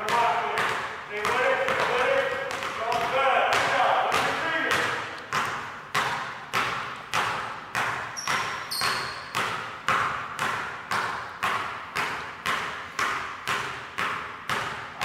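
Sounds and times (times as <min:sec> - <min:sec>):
basketballs bouncing on gym floor: 0:00.0 - 0:15.0
high-pitched squeak: 0:08.2 - 0:09.3.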